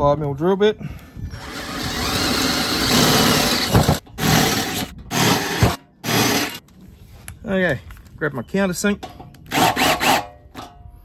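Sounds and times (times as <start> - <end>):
cordless drill boring steel: 1.4 - 6.6, 9.5 - 10.3.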